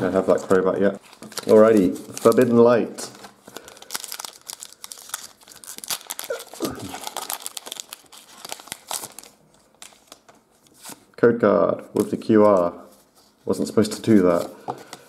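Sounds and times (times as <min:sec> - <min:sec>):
packaging crinkling and tearing: 0:00.2 - 0:11.0.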